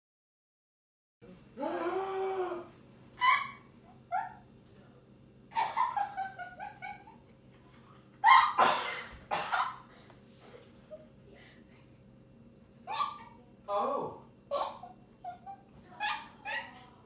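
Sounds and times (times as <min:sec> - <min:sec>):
woman giggling: 0:05.5 - 0:08.4, 0:09.6 - 0:12.0.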